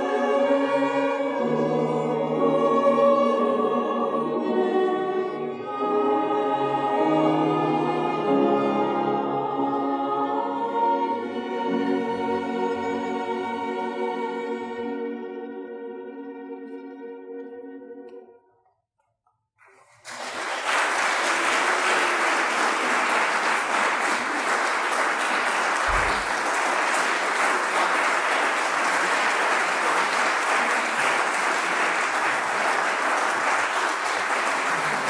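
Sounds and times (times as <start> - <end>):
audience applause: 19.6 - 35.0.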